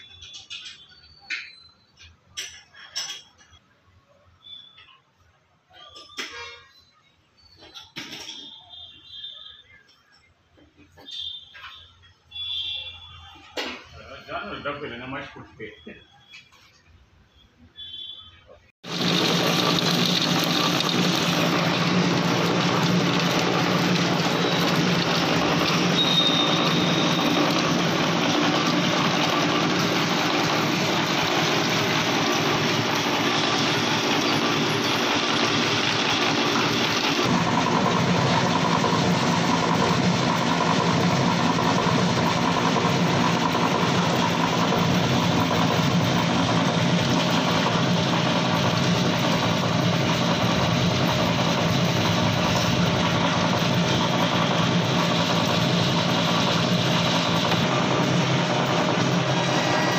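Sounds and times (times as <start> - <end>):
belt-driven mill machinery running: 18.8 - 59.9.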